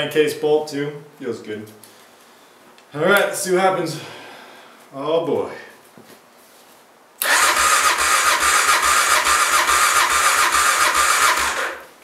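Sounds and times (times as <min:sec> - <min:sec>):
engine cranking with electric starter: 0:07.2 - 0:11.9.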